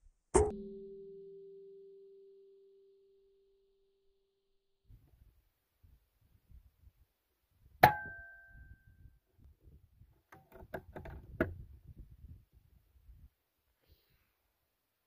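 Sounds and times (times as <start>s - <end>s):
small clicks and knocks: 10.2s - 11.6s.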